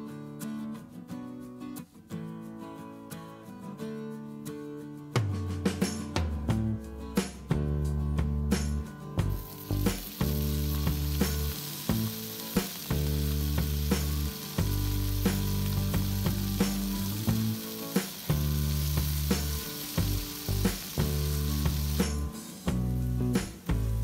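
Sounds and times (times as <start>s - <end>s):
oil sizzling in a pan: 9.2s - 24.0s.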